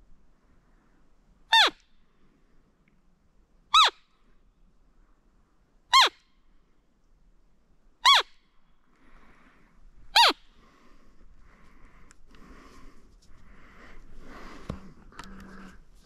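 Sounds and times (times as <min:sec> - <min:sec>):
deer call squeaks: 0:01.5 - 0:01.8, 0:03.7 - 0:04.0, 0:05.9 - 0:06.2, 0:08.0 - 0:08.3, 0:10.2 - 0:10.4
quiet rustling: 0:11.5 - 0:16.0.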